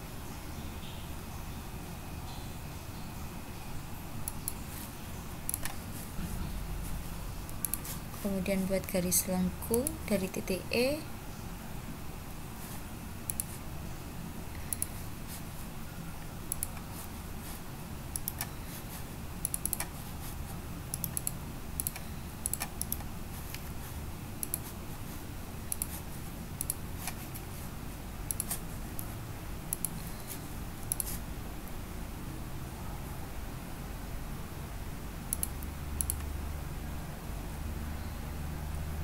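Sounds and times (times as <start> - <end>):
steady low hum: 0.0 - 39.0
computer mouse clicking: 4.2 - 4.6, 5.4 - 5.8, 7.4 - 8.0, 13.2 - 13.6, 14.6 - 15.0, 16.5 - 17.1, 18.1 - 18.6, 19.4 - 20.0, 20.9 - 23.7, 24.4 - 24.8, 25.7 - 27.4, 28.3 - 29.1, 29.7 - 31.2, 35.3 - 36.3.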